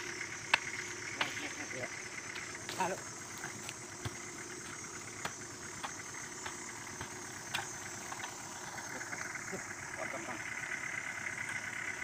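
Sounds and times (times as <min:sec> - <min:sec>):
truck engine idling: 0:00.0 - 0:12.0
hoe chopping wet soil: 0:02.4 - 0:08.4.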